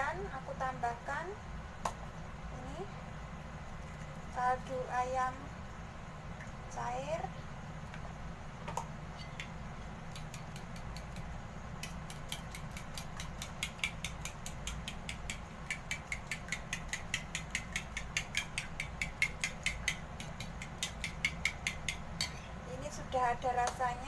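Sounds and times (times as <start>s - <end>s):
metal spoon clicking on porcelain bowl: 10.1s - 22.4s.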